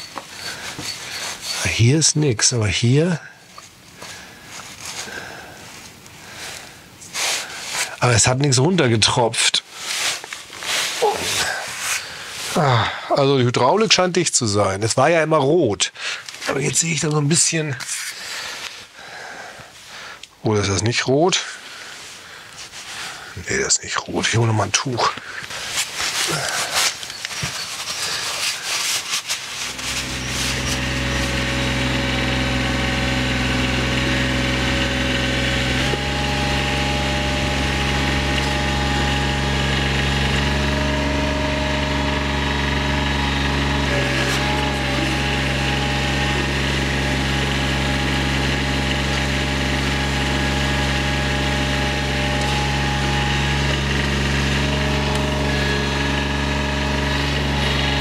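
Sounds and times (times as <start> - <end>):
mower diesel engine running: 0.0 - 2.8, 29.4 - 58.0.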